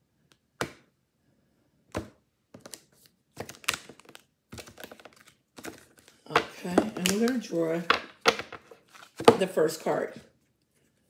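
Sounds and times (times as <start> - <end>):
cards shuffling: 2.0 - 9.5.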